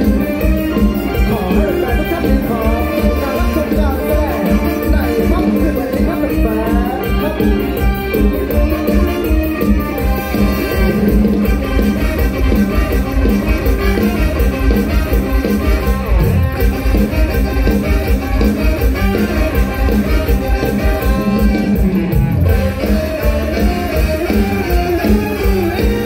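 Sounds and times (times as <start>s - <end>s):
amplified live band music: 0.0s - 26.0s.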